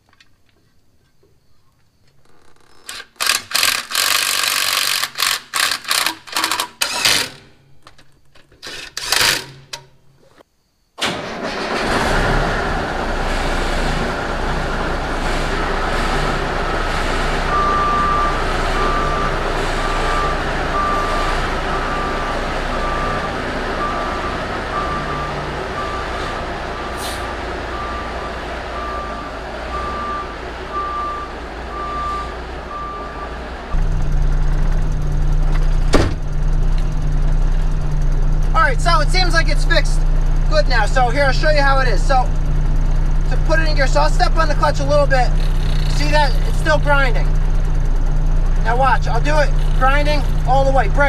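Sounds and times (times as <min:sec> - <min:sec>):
tool clicks and knocks: 0:03.0 - 0:09.9
truck engine running: 0:11.4 - 0:51.0
backup alarm beeping: 0:16.7 - 0:36.6.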